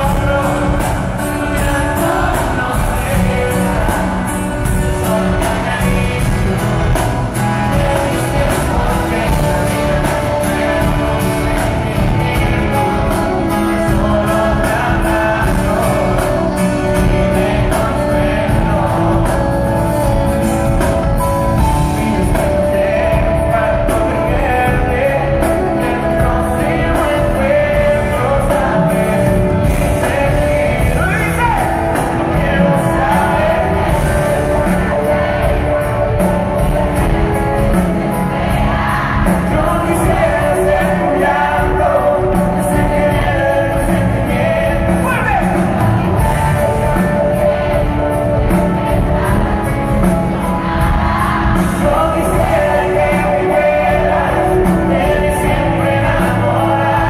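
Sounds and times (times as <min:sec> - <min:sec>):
lead singer singing: 0:00.0 - 0:57.0
live pop band playing: 0:00.0 - 0:57.0.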